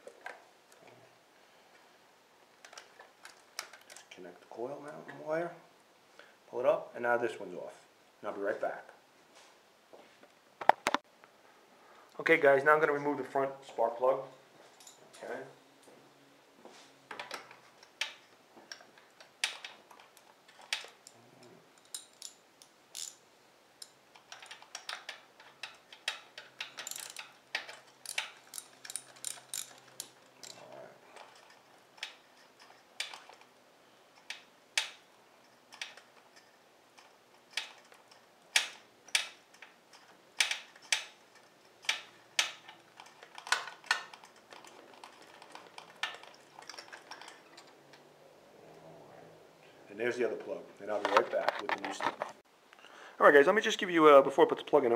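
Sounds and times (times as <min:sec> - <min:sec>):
ratchet wrench clicking: 0:23.8 - 0:30.6.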